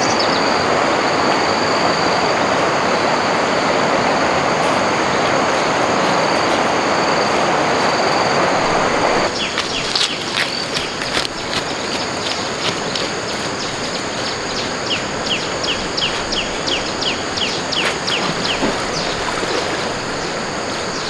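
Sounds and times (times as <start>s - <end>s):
insect drone: 0.0s - 21.0s
stream water rushing: 0.0s - 21.0s.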